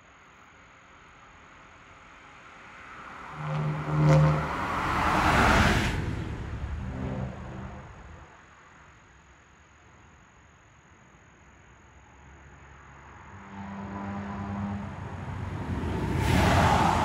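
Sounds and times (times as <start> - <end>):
car passing by: 2.0 - 8.3, 12.5 - 17.0.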